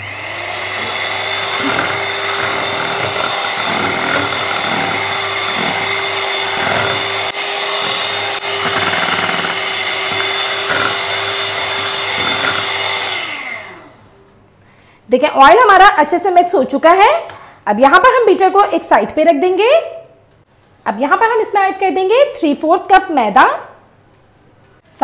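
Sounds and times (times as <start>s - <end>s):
electric hand mixer whisking: 0.0s - 14.2s.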